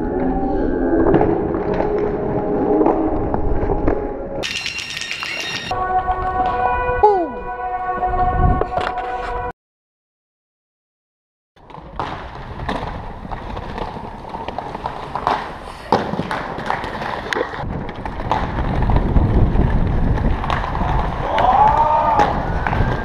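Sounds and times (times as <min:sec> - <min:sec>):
skate wheels rolling on paving: 0:11.6 - 0:23.0
skates clacking: 0:11.6 - 0:23.0.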